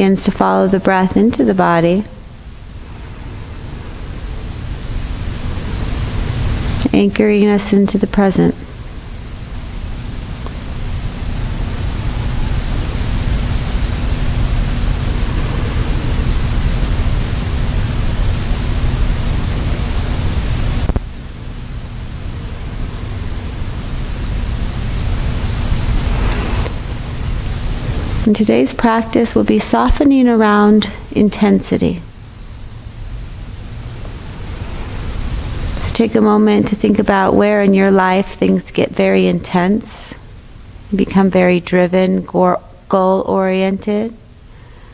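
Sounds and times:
low rumble: 0:00.0 - 0:38.2
background hiss: 0:00.0 - 0:44.9
faint even hum: 0:00.0 - 0:44.9
rushing air: 0:02.1 - 0:06.9, 0:08.6 - 0:29.5, 0:32.0 - 0:36.1.

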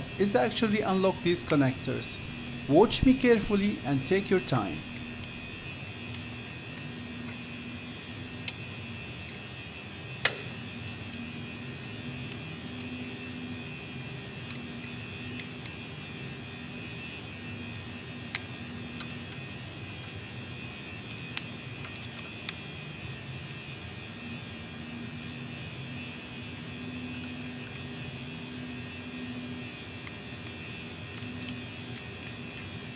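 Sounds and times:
low background hum: 0:00.0 - 0:32.9
screwdriver clicking on plastic connectors: 0:26.9 - 0:28.6, 0:29.3 - 0:32.7.

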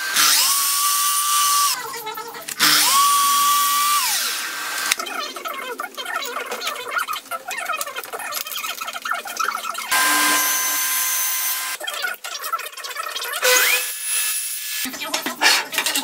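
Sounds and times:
table saw motor running: 0:00.0 - 0:01.9, 0:02.5 - 0:05.0, 0:09.8 - 0:11.8, 0:13.4 - 0:14.9.

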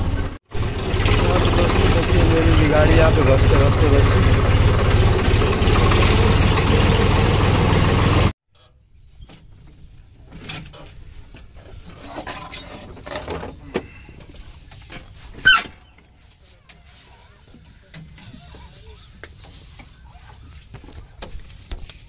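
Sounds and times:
tractor diesel engine running: 0:00.0 - 0:08.8.

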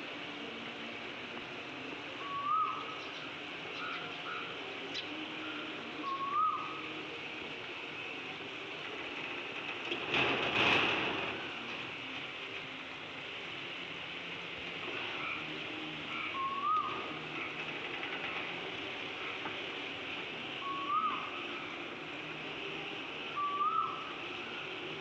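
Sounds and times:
steady hiss: 0:00.0 - 0:25.0
rising whistled call: 0:02.2 - 0:06.9, 0:16.1 - 0:17.5, 0:20.6 - 0:21.8, 0:23.3 - 0:24.6.

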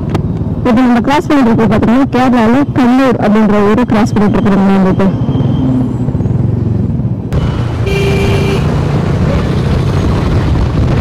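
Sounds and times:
motorcycle engine and wind: 0:00.0 - 0:11.0
vehicle horn: 0:07.8 - 0:08.7.

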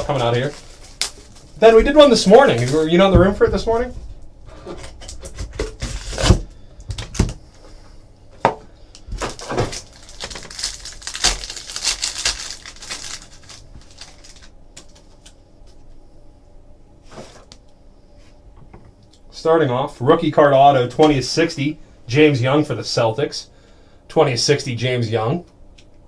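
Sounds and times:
foil wrapper crinkling and tearing: 0:00.0 - 0:03.0, 0:09.2 - 0:15.4.

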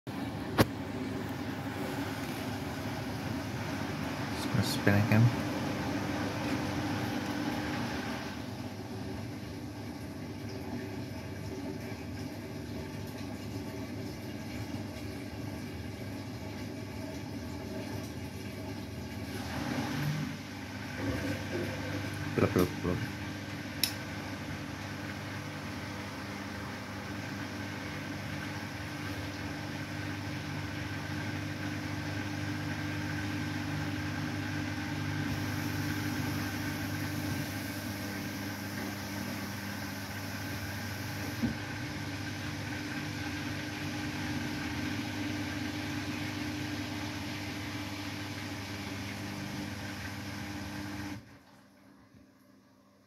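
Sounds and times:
washing machine spinning: 0:00.1 - 0:53.0
click: 0:23.8 - 0:24.0.

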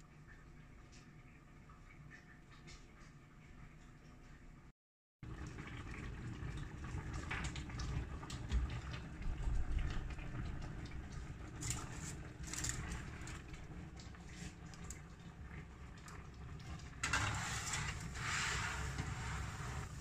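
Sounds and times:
aluminium foil crinkling: 0:11.6 - 0:13.4.

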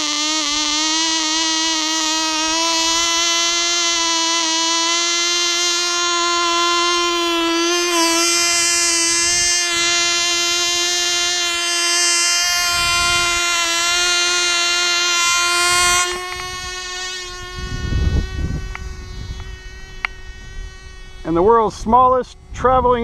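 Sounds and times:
model plane engine buzzing whine: 0:00.0 - 0:23.0
low rumble on microphone: 0:12.2 - 0:23.0.

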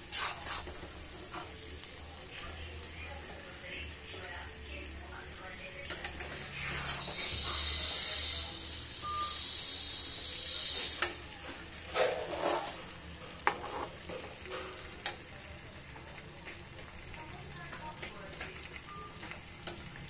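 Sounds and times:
metal spatula scraping a pan: 0:00.0 - 0:01.6, 0:06.0 - 0:11.1, 0:11.7 - 0:15.0
fish sizzling in oil: 0:00.0 - 0:20.0.

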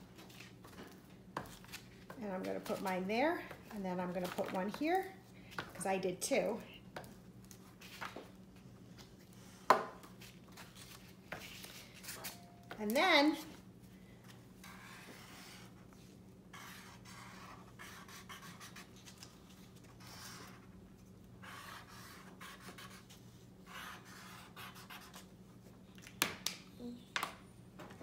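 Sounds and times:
marker scratching on paper: 0:14.6 - 0:15.8, 0:16.5 - 0:19.1, 0:20.0 - 0:20.7, 0:21.4 - 0:25.3.

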